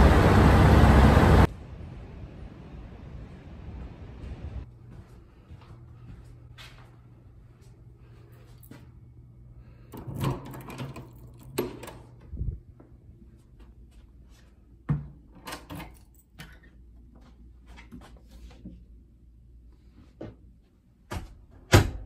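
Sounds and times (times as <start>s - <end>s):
steady low hum: 0.0s - 15.4s.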